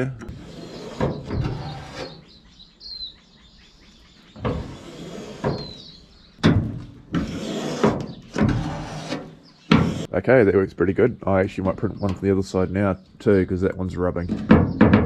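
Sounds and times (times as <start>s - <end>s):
bird chirping: 0.0s - 7.1s, 8.0s - 15.0s
steering rods scraping and clunking: 0.2s - 2.4s, 4.4s - 10.1s.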